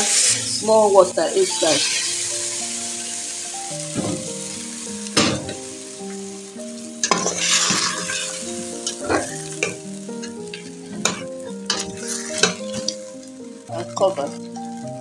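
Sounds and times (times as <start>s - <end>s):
oil sizzling: 0.0s - 15.0s
soft background music: 0.0s - 15.0s
spoon knocking and scraping pot: 7.0s - 13.0s.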